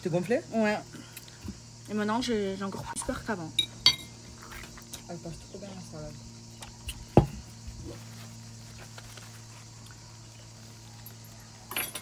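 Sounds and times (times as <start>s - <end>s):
steady low hum: 0.0s - 11.7s
paper napkin crackling: 7.9s - 9.8s.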